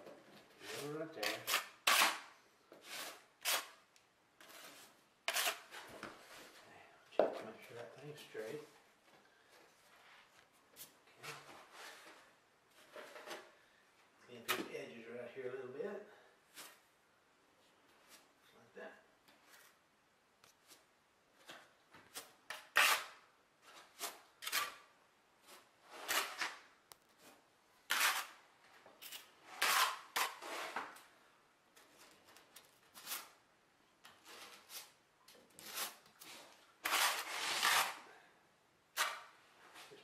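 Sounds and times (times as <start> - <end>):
trowel scraping mortar: 0.6 - 3.8, 4.4 - 6.6, 22.1 - 26.6, 27.2 - 28.4, 29.0 - 31.0, 35.6 - 38.1, 39.0 - 40.0.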